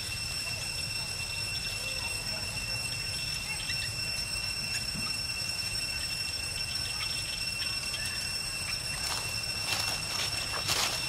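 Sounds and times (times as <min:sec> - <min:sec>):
insects droning: 0:00.0 - 0:11.0
dry leaves rustling: 0:08.7 - 0:11.0.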